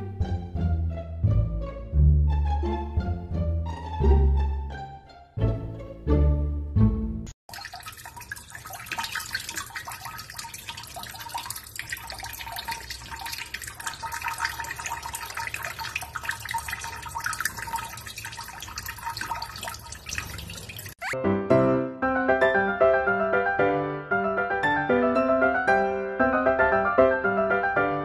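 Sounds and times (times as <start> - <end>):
tap water running: 7.5 - 21.2
water splashing in sink: 7.5 - 21.2.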